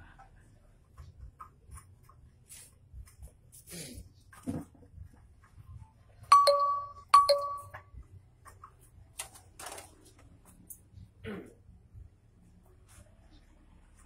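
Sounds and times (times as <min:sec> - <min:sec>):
ringing dings: 0:06.3 - 0:07.8.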